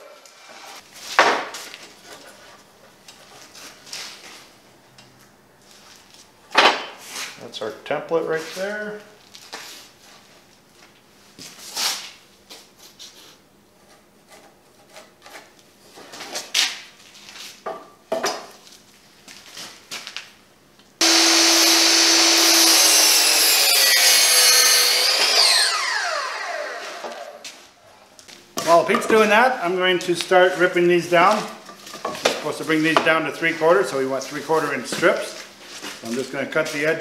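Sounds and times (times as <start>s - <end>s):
miter saw cutting wood: 21.0s - 27.5s.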